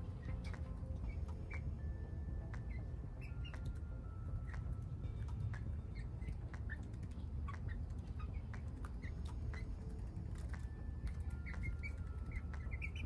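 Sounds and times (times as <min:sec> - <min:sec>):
hens chirping and peeping: 0:00.0 - 0:01.8, 0:02.5 - 0:03.8, 0:04.4 - 0:13.0
low steady rumble: 0:00.0 - 0:13.0
hens pecking tapping: 0:04.4 - 0:13.0.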